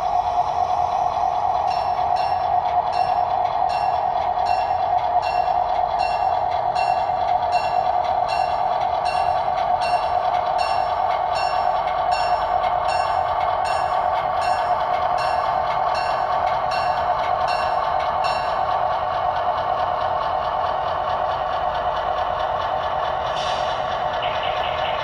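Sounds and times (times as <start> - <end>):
locomotive bell ringing: 0.0 - 21.2
locomotive engine drone from speaker: 0.0 - 25.0.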